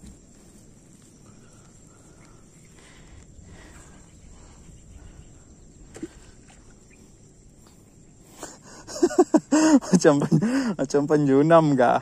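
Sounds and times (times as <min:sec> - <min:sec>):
man talking: 0:09.9 - 0:12.0.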